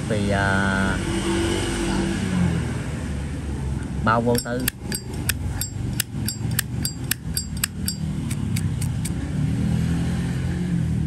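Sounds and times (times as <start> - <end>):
lighter lid clicking open and shut: 4.4 - 9.1.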